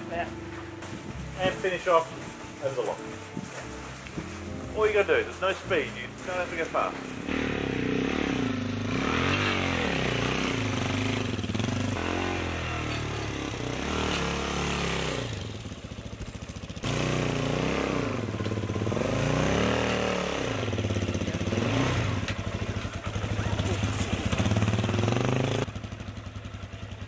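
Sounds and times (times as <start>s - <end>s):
dirt bike engine revving: 6.3s - 25.8s.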